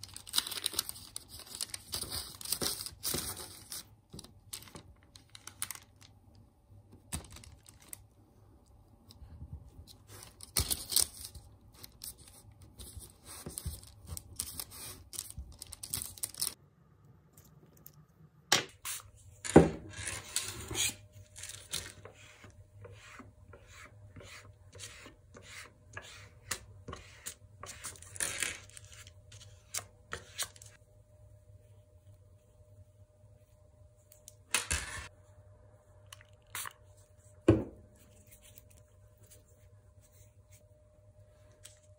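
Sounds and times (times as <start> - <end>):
paper rustling: 9.9 - 16.6
scraper smoothing clay: 22.0 - 28.0.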